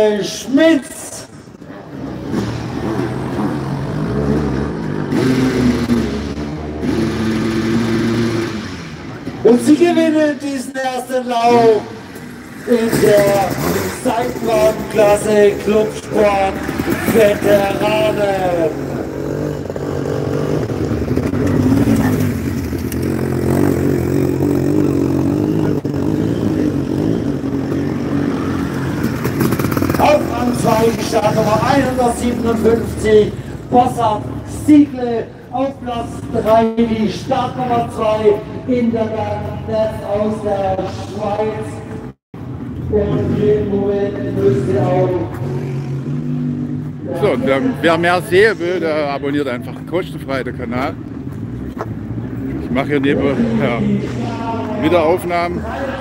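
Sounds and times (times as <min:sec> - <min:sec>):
motorcycle engine revving hard: 0:01.9 - 0:09.2, 0:11.5 - 0:33.2, 0:42.9 - 0:48.9.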